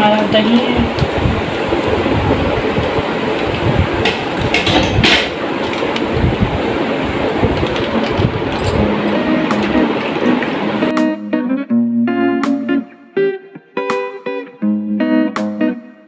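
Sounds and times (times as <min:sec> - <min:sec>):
loud rushing noise: 0:00.8 - 0:11.0.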